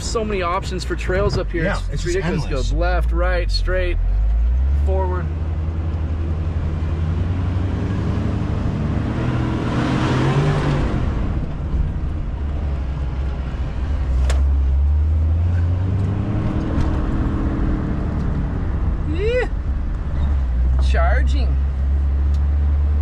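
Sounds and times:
car engine running: 0:00.0 - 0:09.6
tyre and road noise: 0:00.0 - 0:23.0.

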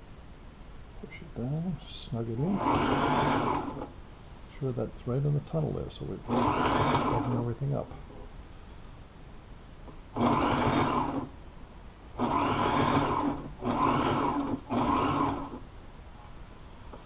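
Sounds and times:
sewing machine motor whine: 0:02.5 - 0:04.0, 0:06.2 - 0:07.5, 0:10.1 - 0:11.3, 0:12.2 - 0:15.6.

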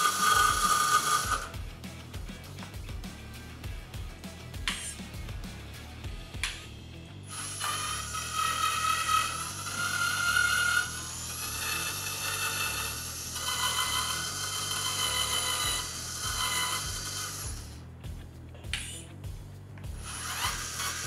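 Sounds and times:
toy truck motor gear whine: 0:00.0 - 0:01.5, 0:07.3 - 0:17.8, 0:20.0 - 0:21.0.

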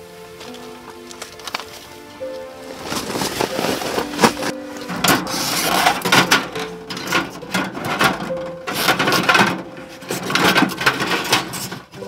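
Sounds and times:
metal clattering and scraping: 0:02.7 - 0:12.0.

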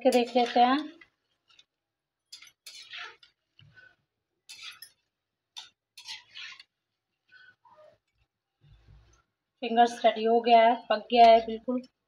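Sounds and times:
metal spatula clinking and scraping: 0:00.0 - 0:07.9.

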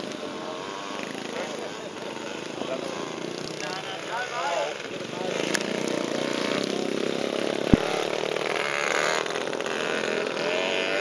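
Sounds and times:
motocross bike engines revving: 0:00.0 - 0:11.0
sharp thump: 0:07.7 - 0:08.0.

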